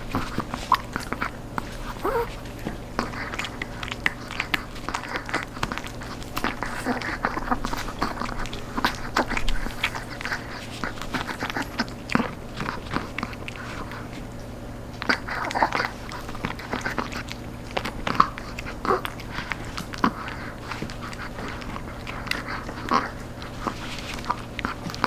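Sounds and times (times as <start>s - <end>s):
dog chewing crunchy treat: 0.0s - 25.0s.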